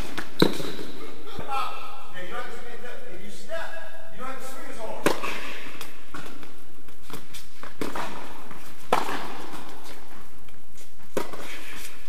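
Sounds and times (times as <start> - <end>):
steady background hiss: 0.0 - 12.0
tennis ball struck by racket: 7.8 - 10.0.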